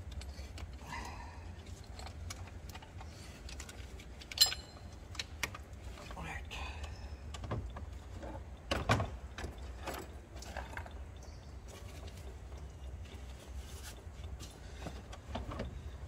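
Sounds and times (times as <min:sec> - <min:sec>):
low steady hum: 0:00.0 - 0:16.0
hand tools clinking on metal: 0:04.2 - 0:05.3.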